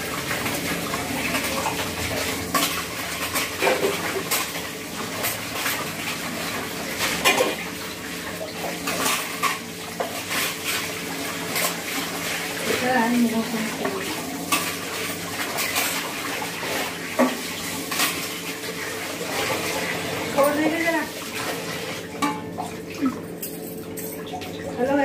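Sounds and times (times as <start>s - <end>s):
dishes and utensils clinking: 0.4s - 6.0s, 7.0s - 7.7s, 8.4s - 11.9s, 13.8s - 18.4s, 22.1s - 24.6s.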